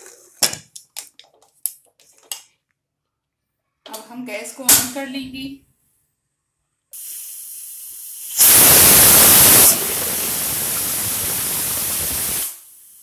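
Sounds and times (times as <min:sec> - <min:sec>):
pressure cooker whistling: 0:07.0 - 0:12.7
steam hissing: 0:07.0 - 0:13.0.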